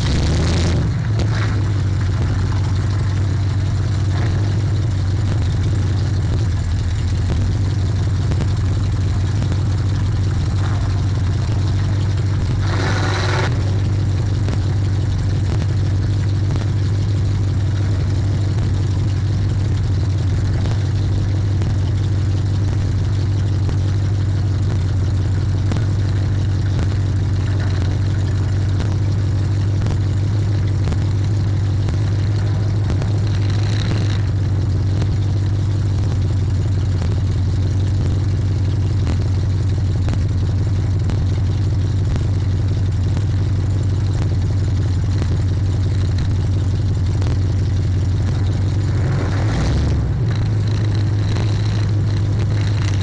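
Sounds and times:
loud car engine and exhaust: 0.0 - 53.0.

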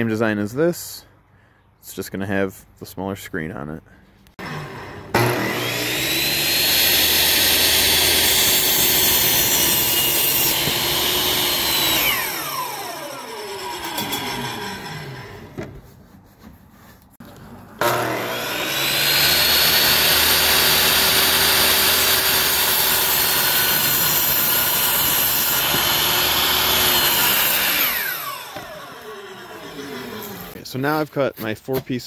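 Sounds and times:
miter saw motor whine: 4.4 - 15.4, 17.8 - 30.6
saw blade cutting wood: 4.4 - 15.9, 17.8 - 30.6.

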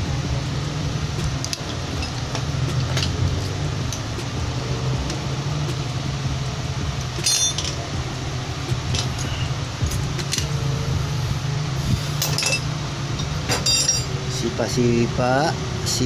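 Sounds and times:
steady low hum: 0.0 - 16.0
metal tools clinking: 1.4 - 4.1, 7.2 - 7.8, 8.9 - 10.6, 12.2 - 14.2.

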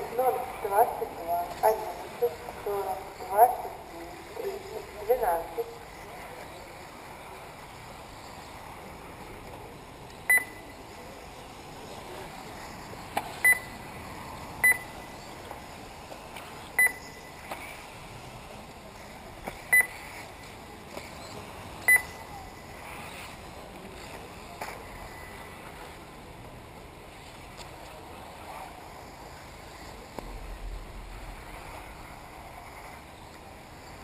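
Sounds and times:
outdoor background noise: 0.0 - 34.0
short electronic beeps: 10.3 - 10.8, 13.4 - 13.8, 14.6 - 15.0, 16.8 - 17.4, 19.7 - 20.0, 21.2 - 22.7.

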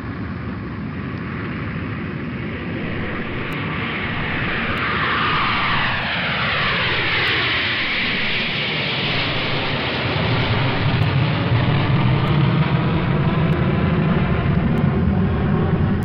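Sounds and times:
propeller airplane flying past: 0.0 - 16.0.

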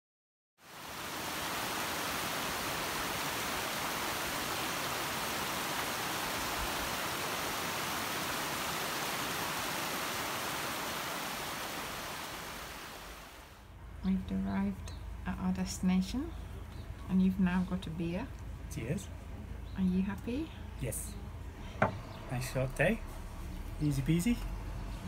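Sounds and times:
running water: 0.6 - 13.6.

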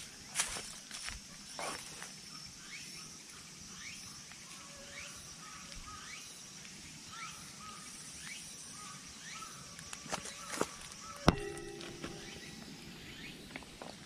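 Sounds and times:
steady high whine: 10.8 - 14.0.

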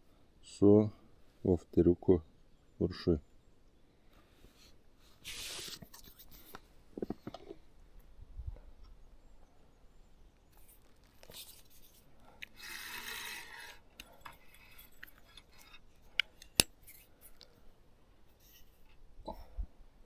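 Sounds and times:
fishing tackle rustling: 10.6 - 17.7.

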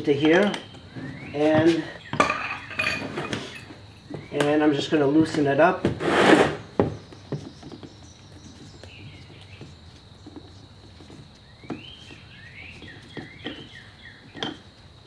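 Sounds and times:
bird chirping: 0.0 - 5.6, 6.4 - 15.0.

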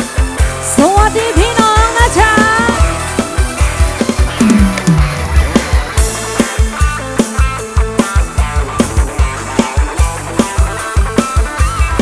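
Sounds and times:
instrumental band music: 0.0 - 12.0
fast kick-drum beat: 4.2 - 9.4
plucked guitar-like melody: 4.4 - 5.6.

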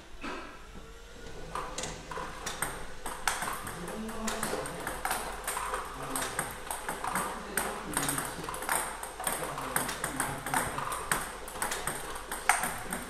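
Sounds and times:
table tennis balls clicking: 1.2 - 13.0.

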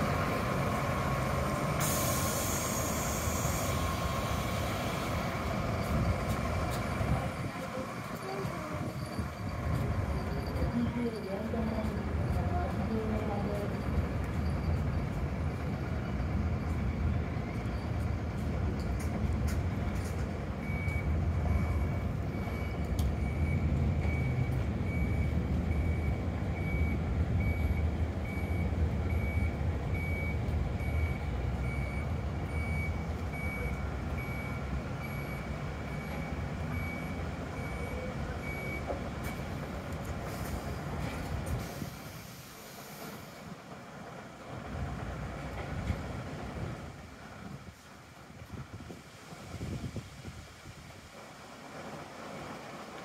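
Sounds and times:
bus diesel engine running: 0.0 - 53.0
reversing beeper beeps: 20.6 - 39.4.

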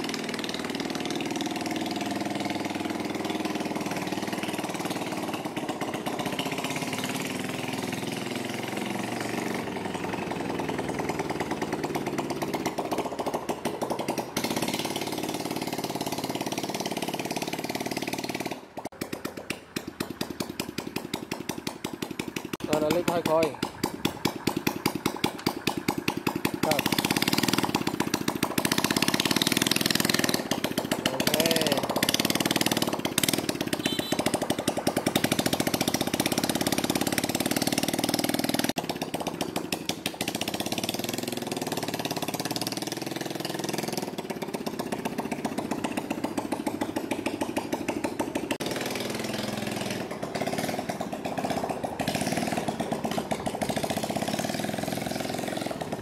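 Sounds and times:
motorbike engine revving: 0.0 - 56.0.

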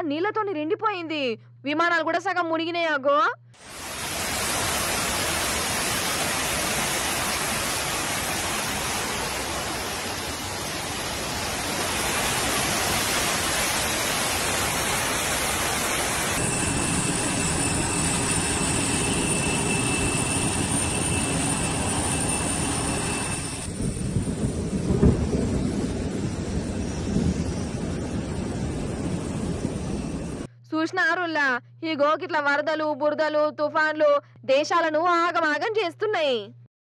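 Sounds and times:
floodwater rushing down stairs: 3.6 - 16.4
thin steady tone: 3.7 - 23.8.

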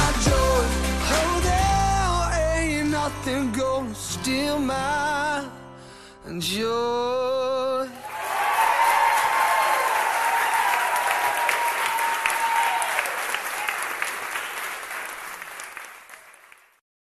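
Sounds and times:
audience applauding: 8.0 - 16.8.

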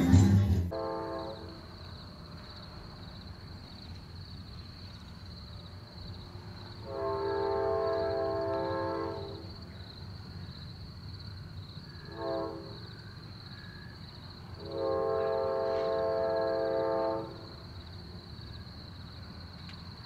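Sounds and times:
distant locomotive air horn: 0.7 - 1.8, 6.8 - 9.6, 12.0 - 13.0, 14.6 - 17.6.

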